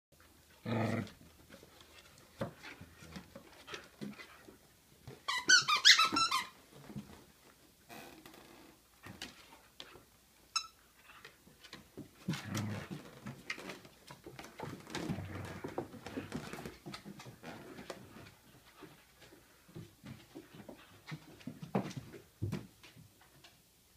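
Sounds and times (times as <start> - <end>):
dogs growling: 0.6 - 1.2
toy squeaking: 5.3 - 6.5.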